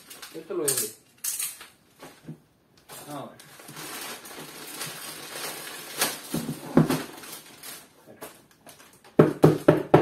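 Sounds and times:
packaging rustling: 0:00.0 - 0:00.7, 0:02.9 - 0:09.2.

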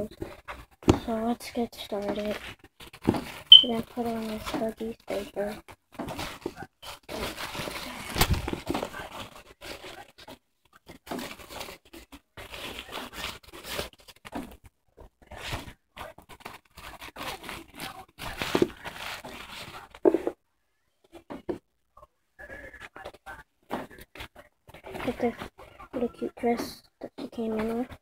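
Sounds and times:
diaper and clothes crinkling: 0:00.0 - 0:20.4.

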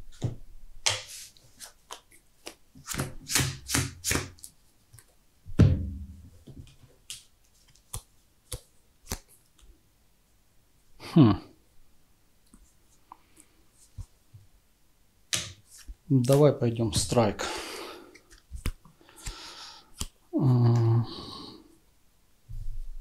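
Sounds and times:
cards sliding and flicking: 0:00.8 - 0:05.1, 0:07.1 - 0:09.6, 0:18.1 - 0:20.2.

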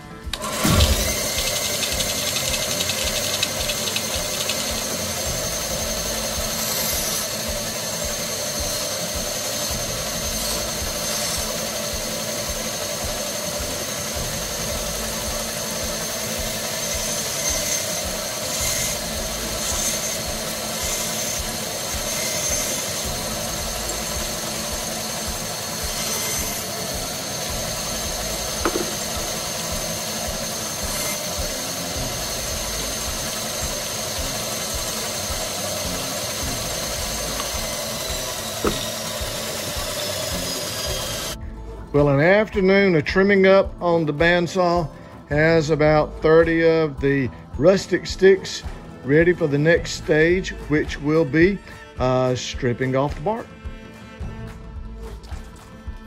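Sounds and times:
bandsaw cutting twigs: 0:00.0 - 0:41.4, 0:45.4 - 0:54.3
bandsaw running: 0:00.0 - 0:56.0
knock: 0:28.6 - 0:29.0, 0:38.6 - 0:38.8.

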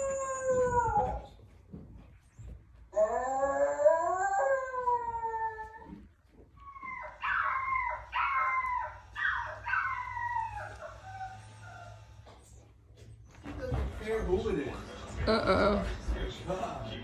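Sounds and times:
dog howling: 0:00.0 - 0:01.4, 0:02.9 - 0:06.0, 0:06.6 - 0:12.2.

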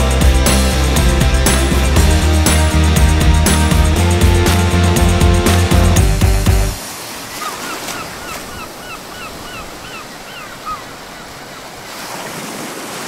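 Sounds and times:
waves washing: 0:00.0 - 0:13.0
wind: 0:06.8 - 0:13.0.

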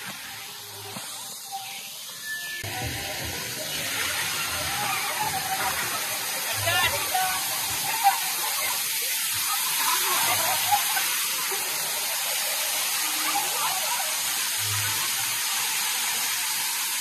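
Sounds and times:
waterfall hissing: 0:00.0 - 0:17.0.

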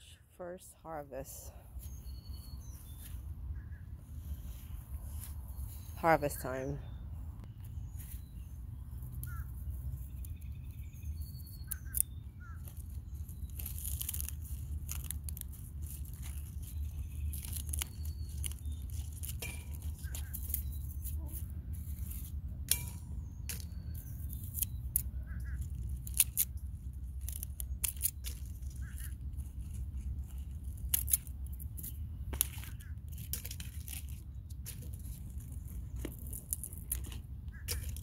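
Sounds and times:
faint bird chirps: 0:01.8 - 0:06.0.

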